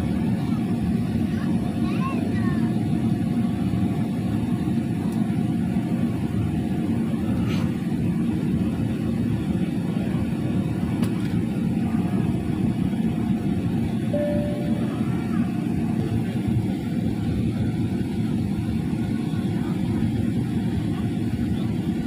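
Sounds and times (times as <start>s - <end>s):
jet engine cabin rumble: 0.0s - 22.0s.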